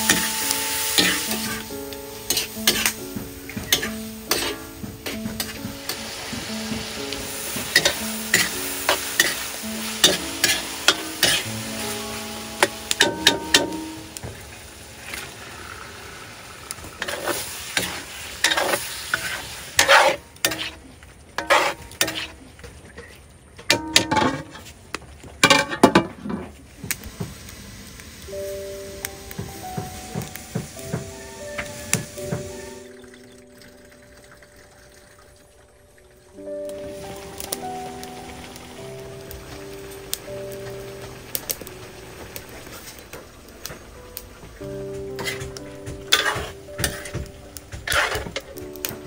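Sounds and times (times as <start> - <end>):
metal ladle scraping a wok: 0.0 - 1.7, 2.3 - 3.0, 3.7 - 6.0, 7.4 - 11.5, 17.0 - 20.8, 21.4 - 22.4, 45.2 - 48.6
food sizzling: 0.0 - 24.7, 26.6 - 49.0.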